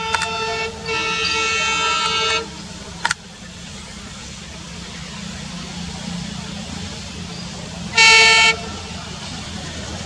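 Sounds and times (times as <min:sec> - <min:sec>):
locomotive horn: 0:00.0 - 0:02.7, 0:07.9 - 0:09.0
engine low rumble: 0:00.0 - 0:10.0.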